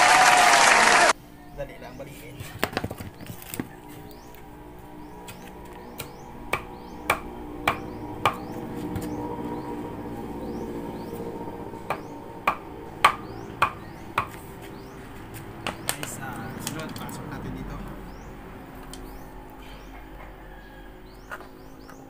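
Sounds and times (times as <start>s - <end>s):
hammer blows: 11.8s - 14.4s.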